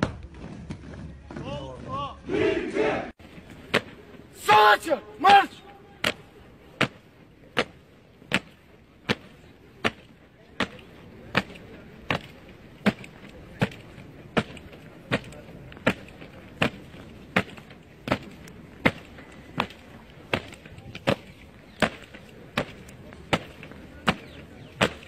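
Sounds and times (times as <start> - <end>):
boots marching on stone: 5.3 - 25.0.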